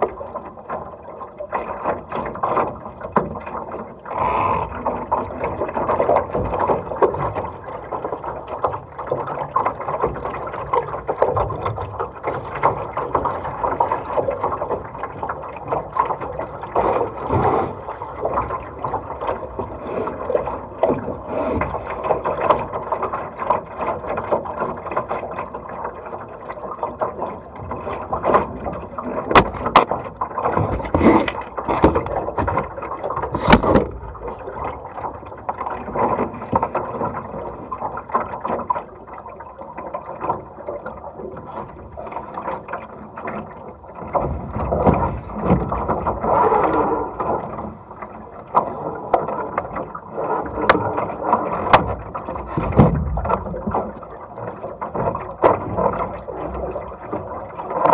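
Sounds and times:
water sloshing along hull: 0.0s - 57.9s
wind on microphone: 44.3s - 47.8s.

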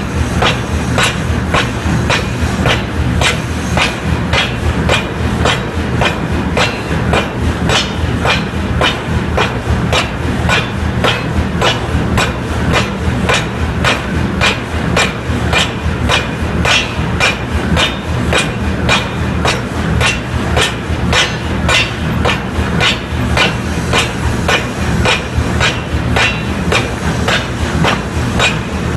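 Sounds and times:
forging hammer striking steel: 0.0s - 28.9s
low machine hum: 0.0s - 28.9s.

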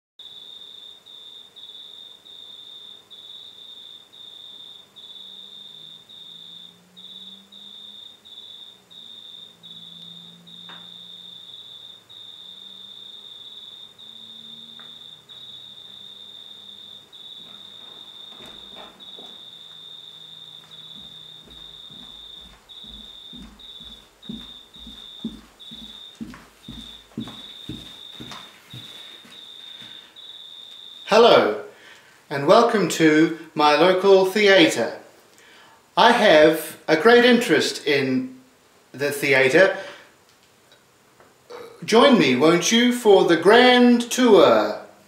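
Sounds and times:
cricket chirping: 0.2s - 37.4s, 38.3s - 44.0s
footsteps: 17.3s - 30.1s.

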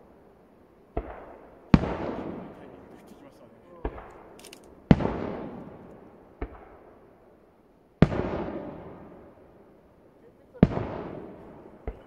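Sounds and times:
firework shells bursting: 0.9s - 7.0s.

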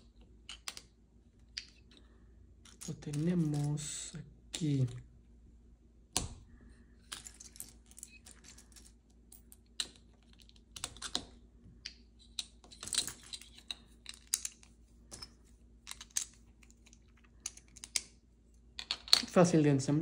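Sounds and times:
plastic toy bricks clicking: 0.5s - 0.9s.

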